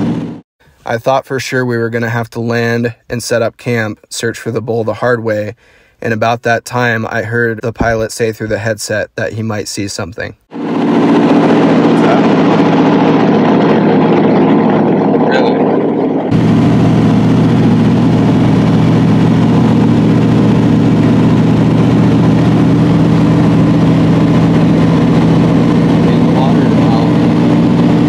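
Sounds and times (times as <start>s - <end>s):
plane engine and propeller drone: 0.0s - 0.4s, 10.5s - 28.0s.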